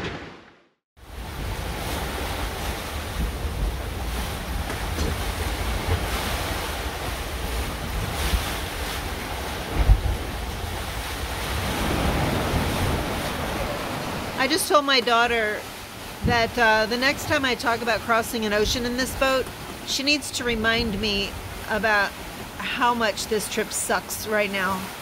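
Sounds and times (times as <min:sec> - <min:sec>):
rough seas breaking: 0:00.0 - 0:25.0
wind buffeting microphone: 0:01.1 - 0:17.6.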